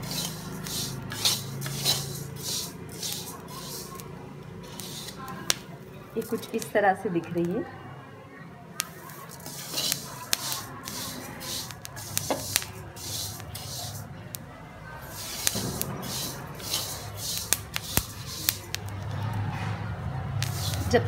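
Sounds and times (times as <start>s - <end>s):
seeds crackling: 0.0s - 6.8s, 8.8s - 14.4s, 15.0s - 19.4s, 20.4s - 21.0s
seeds swishing in a pan: 0.0s - 6.8s, 8.8s - 14.4s, 15.0s - 19.1s, 20.4s - 21.0s.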